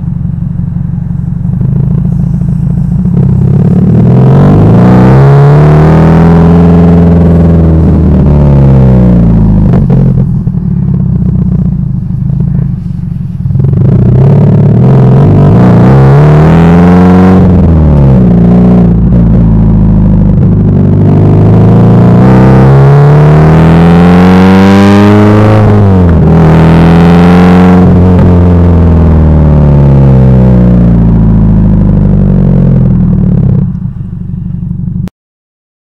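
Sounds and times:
car engine accelerating: 0.0s - 35.1s.

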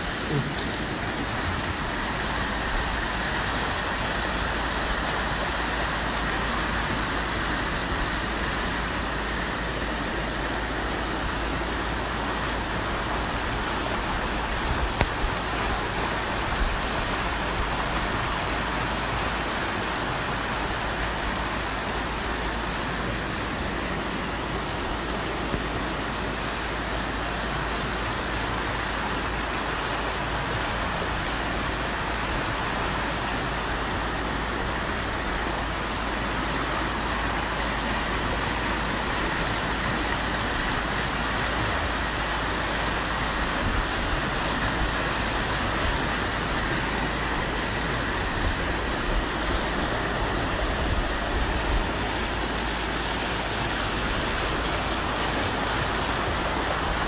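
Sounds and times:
floodwater rushing down street: 0.0s - 57.0s.

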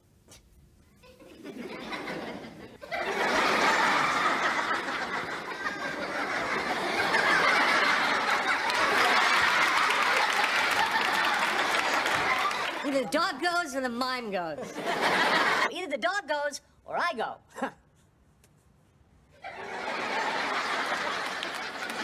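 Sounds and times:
audience laughing: 1.1s - 13.2s, 14.6s - 15.7s, 19.4s - 22.0s.

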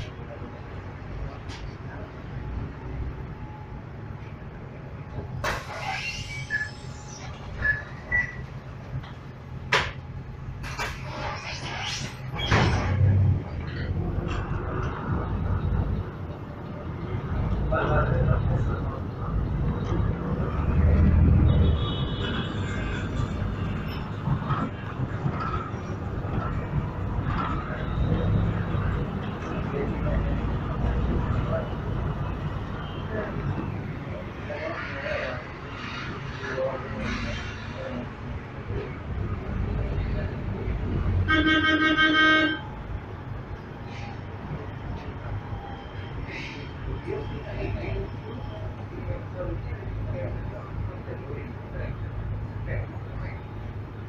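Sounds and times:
bus engine drone: 0.0s - 54.0s
brief high squeaks: 5.4s - 8.6s, 10.6s - 13.1s
rattles and clunks from bus body: 8.2s - 11.4s, 22.2s - 27.8s.

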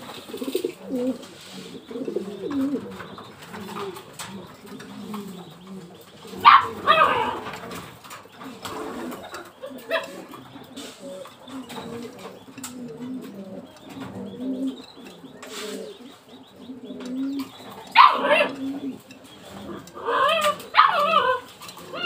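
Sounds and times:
pigeons cooing: 0.0s - 22.0s
dog barking: 6.4s - 7.5s, 18.0s - 18.6s, 20.2s - 21.4s.

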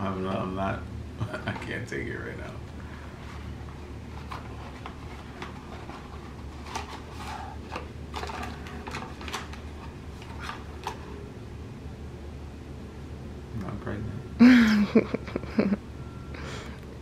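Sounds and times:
low room hum: 0.0s - 17.0s
paper and cardboard rustling: 3.0s - 11.2s.

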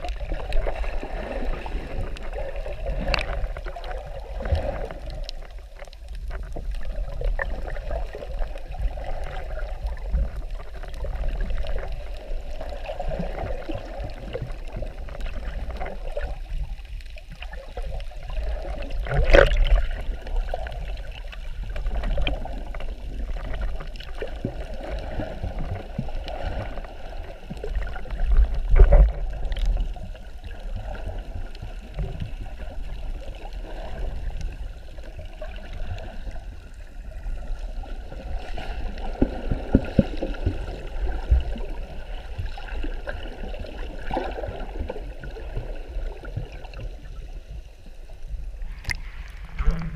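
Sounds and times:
muffled underwater water sloshing: 0.0s - 49.9s
steady low rumble: 47.0s - 49.9s.

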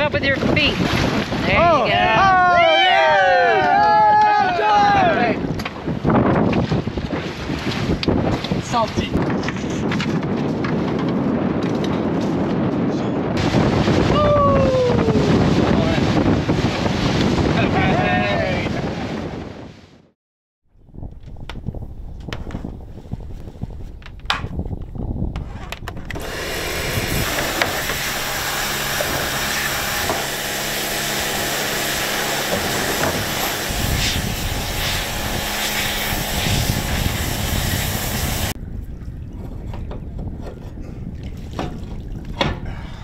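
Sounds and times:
low motor hum: 26.1s - 42.4s
loud hissing rush: 26.2s - 38.6s.

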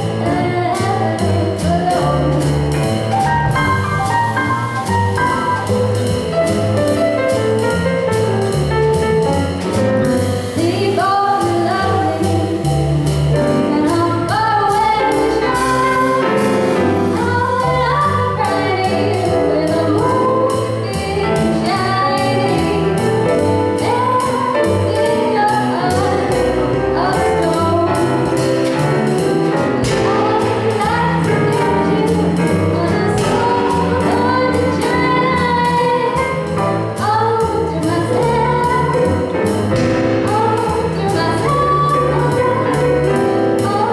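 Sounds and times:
woman singing: 0.0s - 2.6s, 10.6s - 12.8s, 13.6s - 16.2s, 17.0s - 23.1s, 23.7s - 28.8s, 29.8s - 39.4s, 40.2s - 43.9s
double bass: 0.0s - 43.9s
drum kit cymbal beat: 0.0s - 43.9s
grand piano: 0.0s - 43.9s.

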